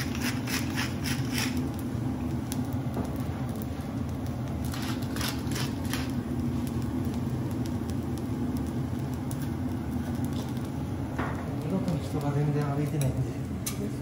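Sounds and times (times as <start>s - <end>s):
scratchy strokes: 0.0s - 1.6s
low mechanical hum: 0.0s - 14.0s
rice sizzling on a griddle: 0.0s - 14.0s.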